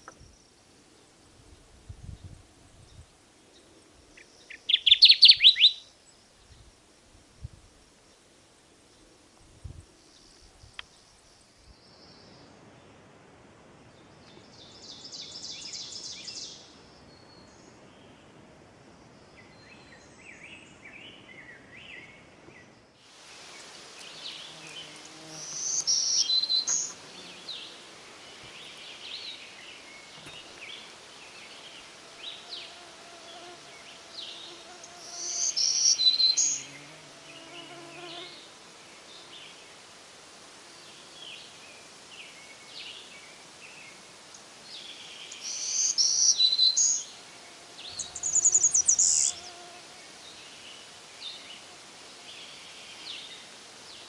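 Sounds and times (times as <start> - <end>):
high buzzy bird song: 2.0 - 6.7, 19.1 - 39.8, 40.7 - 54.0
warbler singing high sweet song: 4.5 - 5.8, 23.6 - 30.1, 34.3 - 36.8, 45.2 - 47.1, 47.8 - 49.4.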